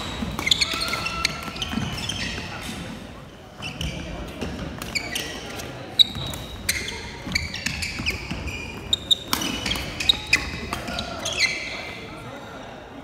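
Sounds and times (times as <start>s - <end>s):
racket hitting shuttlecock: 0.0s - 2.9s, 4.4s - 11.4s
shoes squeaking on court floor: 0.0s - 12.6s.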